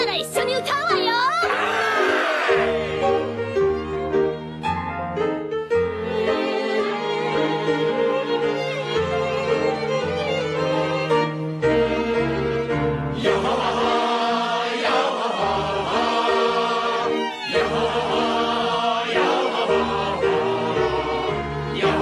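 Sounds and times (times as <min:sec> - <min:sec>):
choir chanting: 0:01.5 - 0:03.6, 0:06.0 - 0:11.2, 0:11.8 - 0:22.0.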